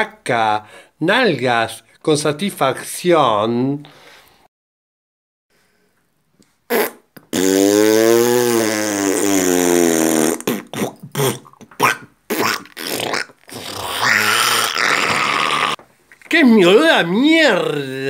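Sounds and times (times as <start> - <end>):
fart sound: 6.7 - 15.8.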